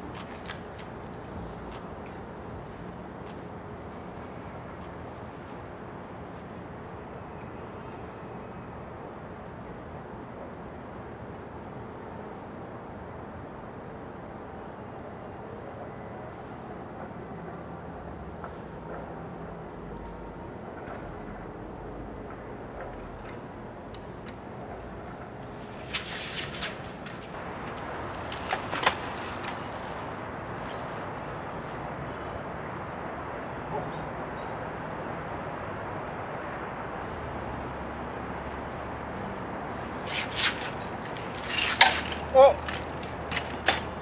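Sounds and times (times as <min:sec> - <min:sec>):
bicycle clicks and knocks: 0:00.0 - 0:09.9, 0:22.8 - 0:31.4, 0:39.8 - 0:44.0
outdoor background noise: 0:00.0 - 0:44.0.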